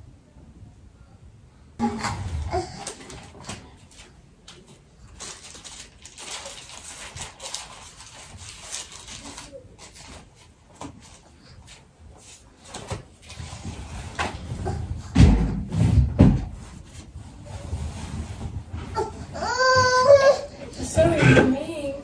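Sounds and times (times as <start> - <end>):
paper rustling: 2.9 - 14.8.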